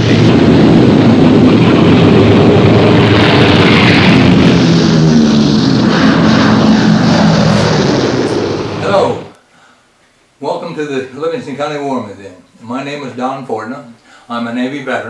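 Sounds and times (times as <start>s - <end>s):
propeller aircraft engine drone: 0.0s - 9.4s.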